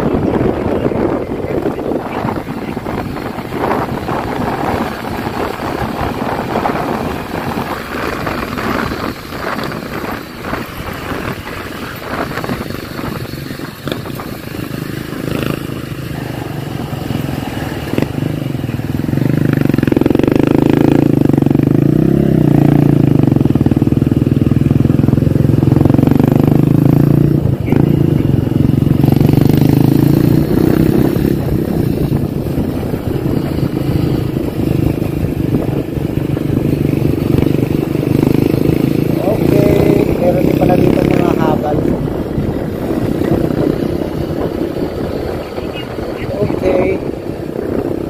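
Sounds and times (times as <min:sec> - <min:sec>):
motorcycle engine: 0:00.0 - 0:48.0
wind buffeting microphone: 0:00.0 - 0:48.0.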